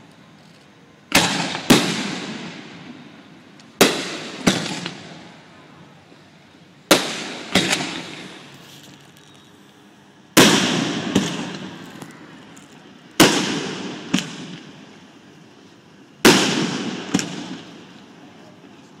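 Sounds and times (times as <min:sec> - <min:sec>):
sharp firework crack: 0:01.1 - 0:03.0, 0:03.6 - 0:05.4, 0:06.9 - 0:08.7, 0:10.3 - 0:15.0, 0:16.2 - 0:18.2
firework shells bursting with rumble: 0:01.1 - 0:05.5, 0:06.9 - 0:08.6, 0:10.3 - 0:18.2.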